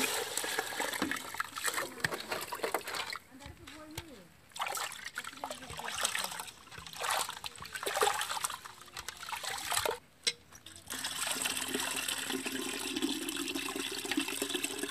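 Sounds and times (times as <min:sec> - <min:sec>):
hand swishing rice in water: 0:04.5 - 0:10.0
water trickling into pot: 0:04.6 - 0:14.9.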